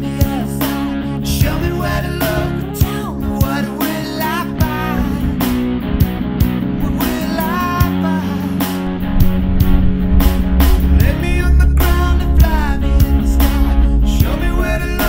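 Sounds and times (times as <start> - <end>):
person singing: 0.0 - 5.6, 6.7 - 9.0, 10.8 - 15.0
electric guitar: 0.0 - 15.0
steady drum beat: 8.6 - 15.0.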